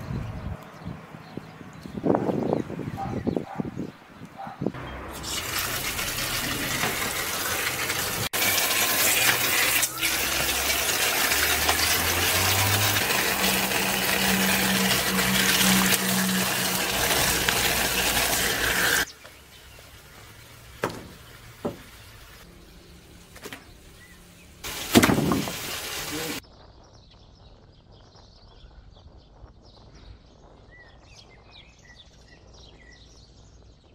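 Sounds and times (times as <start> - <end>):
water pouring: 4.9 - 22.4, 24.6 - 26.4
short knocks: 20.8 - 22.0.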